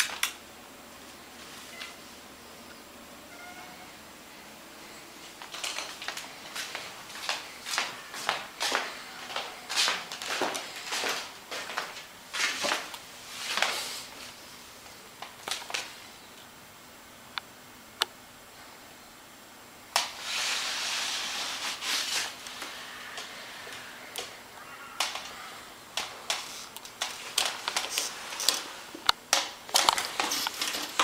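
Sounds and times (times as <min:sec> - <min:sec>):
close rustling: 0:29.6 - 0:31.0.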